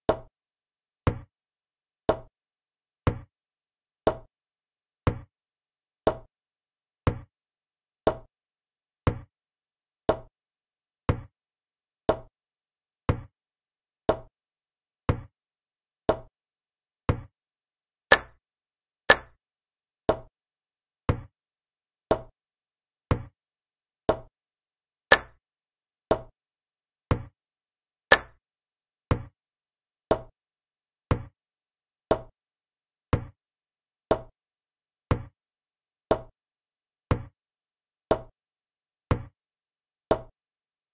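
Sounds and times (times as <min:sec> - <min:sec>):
wooden click of chess moves: 0:28.1 - 0:28.4.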